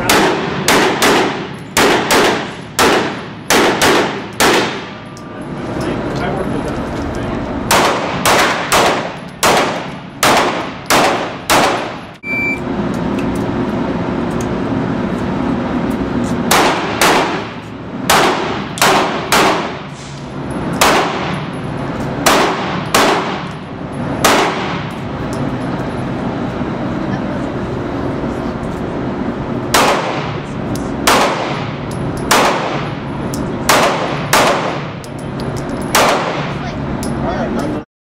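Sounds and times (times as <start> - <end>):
handgun shots with ringing echo: 0.0 - 4.9, 7.7 - 12.0, 18.1 - 19.8, 20.8 - 21.4, 22.2 - 23.6, 24.2 - 25.0, 29.7 - 30.4, 31.0 - 33.0, 33.6 - 34.9, 35.8 - 36.6.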